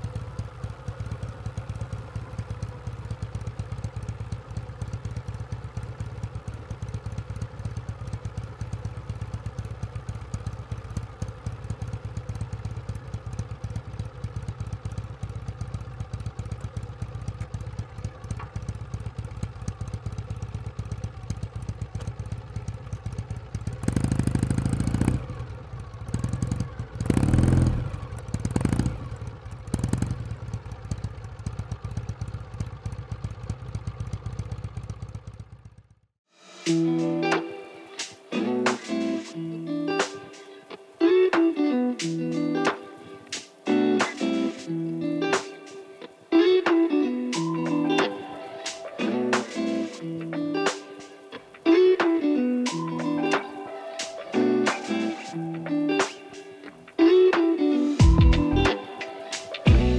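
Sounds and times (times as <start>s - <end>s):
motorcycle engine idling: 0.0s - 59.9s
engine revving: 23.7s - 30.6s, 59.4s - 59.9s.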